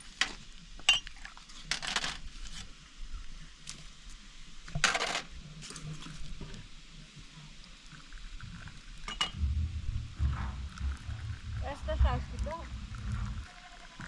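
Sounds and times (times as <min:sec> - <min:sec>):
glasses and teapot clinking on tray: 0:09.1 - 0:09.4
low rumble: 0:09.2 - 0:14.0.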